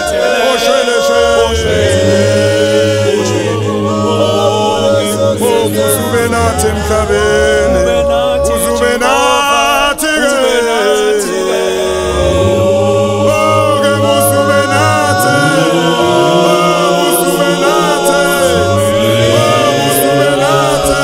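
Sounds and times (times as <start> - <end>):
choir singing a cappella: 0.0 - 21.0.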